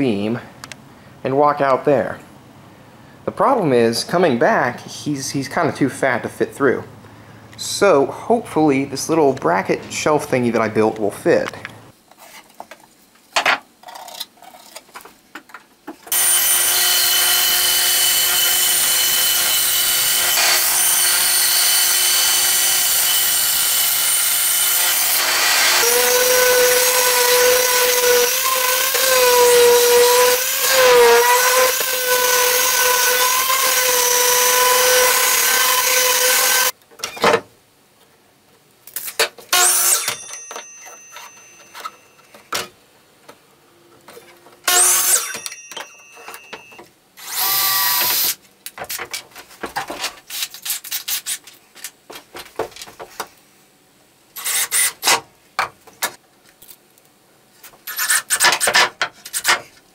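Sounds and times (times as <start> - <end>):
power tools on plywood: 16.1 - 36.7, 44.6 - 48.4.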